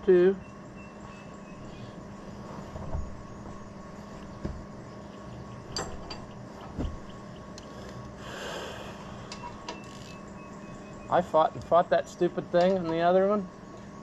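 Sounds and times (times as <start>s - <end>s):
metal tools knocking and clicking: 5.7s - 6.4s.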